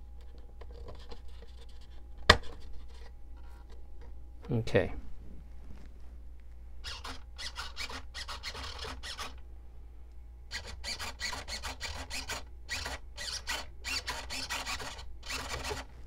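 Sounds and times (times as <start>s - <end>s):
hand tool rasping: 6.8s - 9.3s, 10.5s - 15.9s.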